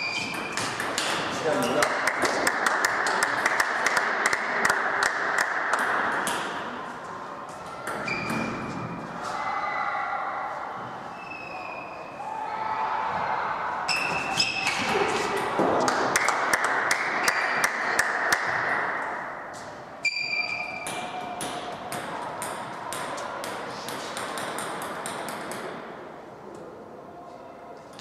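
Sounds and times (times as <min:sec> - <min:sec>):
table tennis balls clicking: 0:00.0 - 0:06.6, 0:20.8 - 0:25.8
short high squeal: 0:11.0 - 0:12.2.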